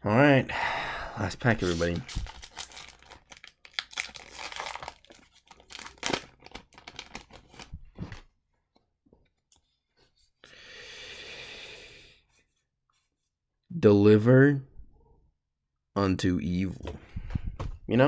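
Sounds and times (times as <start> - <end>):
foil wrapper tearing and crinkling: 1.7 - 7.7.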